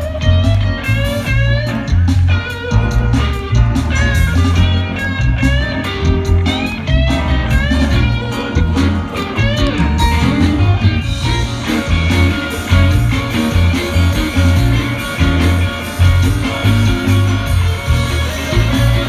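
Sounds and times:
bass line: 0:00.0 - 0:19.0
drums: 0:00.0 - 0:19.0
electric guitar: 0:00.0 - 0:19.0.

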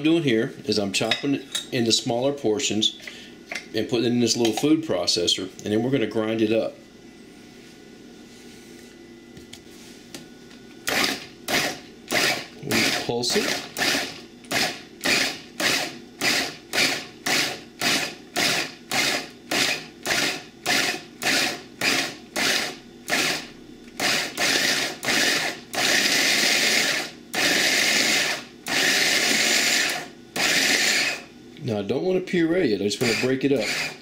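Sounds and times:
food processor pulsing: 0:10.9 - 0:31.3, 0:33.0 - 0:34.0.

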